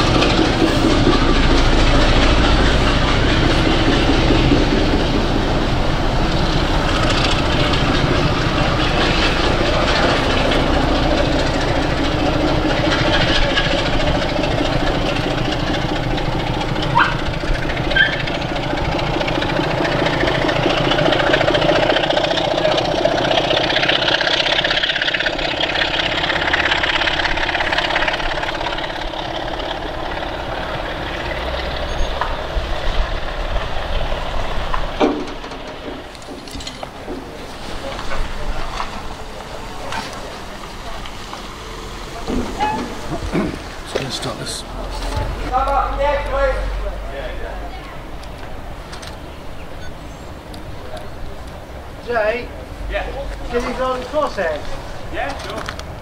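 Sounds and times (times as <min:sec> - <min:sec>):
diesel locomotive engine rumbling: 0:00.0 - 0:56.0
brief high squeaks: 0:42.6 - 0:43.0.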